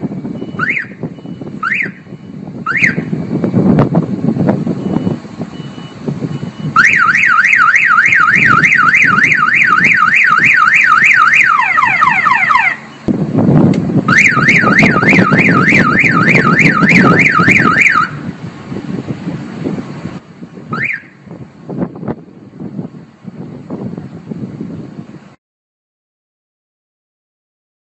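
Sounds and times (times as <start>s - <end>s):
alarm siren warbling: 0.3s - 3.1s, 4.8s - 13.1s, 14.1s - 18.2s, 20.7s - 21.2s.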